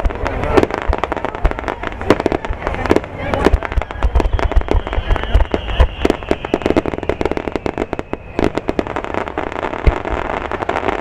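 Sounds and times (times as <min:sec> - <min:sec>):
fireworks crackling and popping: 0:00.0 - 0:11.0
firework whistle falling in pitch: 0:03.7 - 0:09.2.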